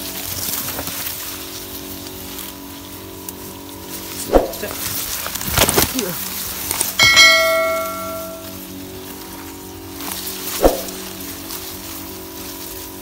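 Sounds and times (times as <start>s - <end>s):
brushing swishes through leaves: 0.0s - 13.0s
steady hum: 0.0s - 13.0s
bell chime notification: 7.0s - 8.5s.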